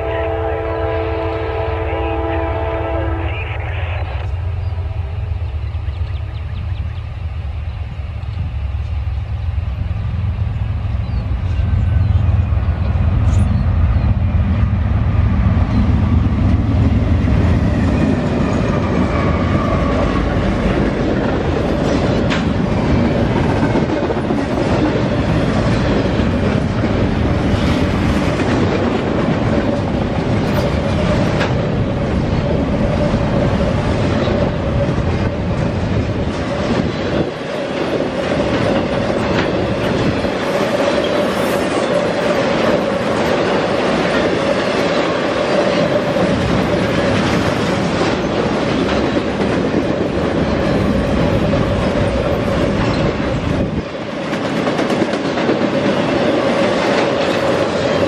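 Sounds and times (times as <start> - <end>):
deep train rumble: 0.0 - 58.0
train wheels clacking on rails: 15.4 - 58.0.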